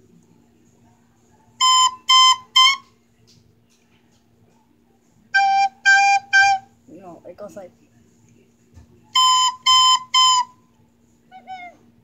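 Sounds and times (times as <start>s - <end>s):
recorder notes: 1.6s - 3.0s, 5.3s - 6.7s, 9.1s - 10.6s.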